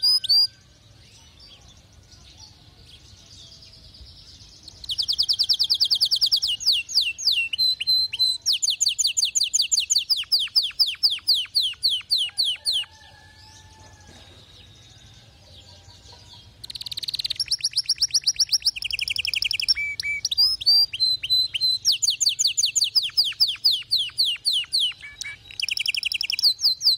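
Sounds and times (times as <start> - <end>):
canary singing trills: 0.0 - 26.9.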